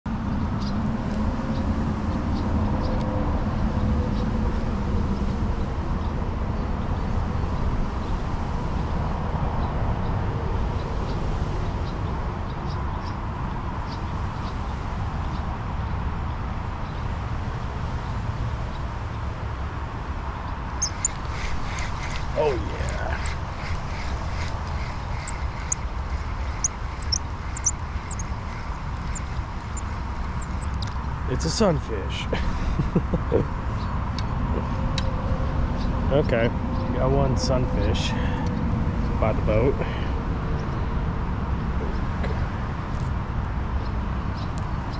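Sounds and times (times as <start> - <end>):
low outdoor background rumble: 19.1 - 44.2
faint high chirps: 20.8 - 30.8.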